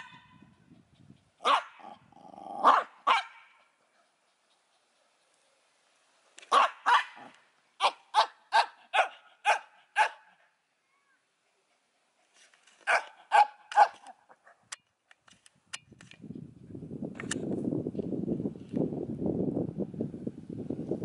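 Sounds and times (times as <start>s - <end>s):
small dog barking: 0.0s - 0.3s, 1.4s - 2.0s, 2.6s - 3.6s, 6.5s - 10.3s, 12.8s - 14.1s.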